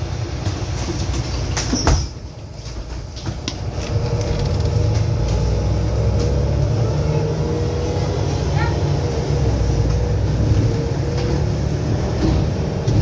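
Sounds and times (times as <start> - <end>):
bus engine rumble: 0.0 - 13.0
bus doors clunking shut: 9.7 - 13.0.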